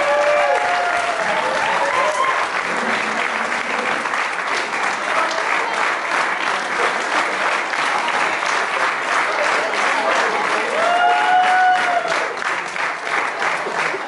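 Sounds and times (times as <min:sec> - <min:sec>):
audience applauding: 0:00.0 - 0:14.0
person whooping: 0:10.7 - 0:12.2.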